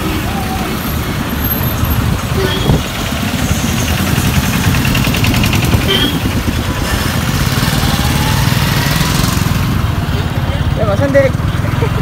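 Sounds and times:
road and traffic noise: 0:00.0 - 0:12.0
motorcycle engine running: 0:00.5 - 0:12.0.

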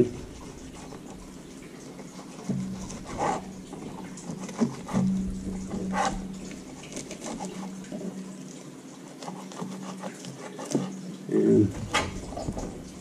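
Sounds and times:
knife scraping fish fillet: 0:02.0 - 0:07.9, 0:09.0 - 0:11.0, 0:11.7 - 0:13.0.

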